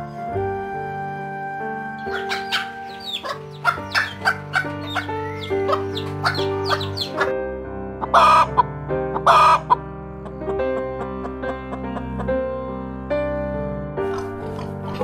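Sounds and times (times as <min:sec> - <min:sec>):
background music: 0:00.0 - 0:15.0
chicks peeping: 0:02.0 - 0:07.3, 0:08.0 - 0:12.3
hens clucking: 0:02.0 - 0:07.3, 0:08.0 - 0:12.3
loud harsh chicken calls: 0:02.0 - 0:07.3, 0:08.0 - 0:09.8.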